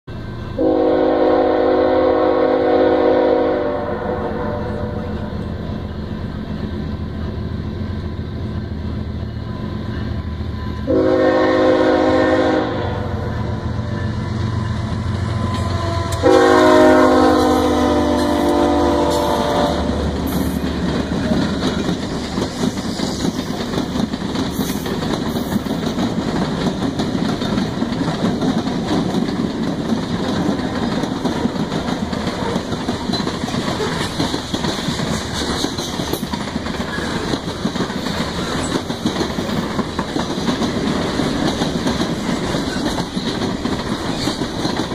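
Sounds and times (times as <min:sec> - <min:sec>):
locomotive horn blast: 0:00.6 - 0:05.3, 0:10.8 - 0:14.4, 0:15.3 - 0:20.2
train wheels clattering on rails: 0:13.2 - 0:44.9.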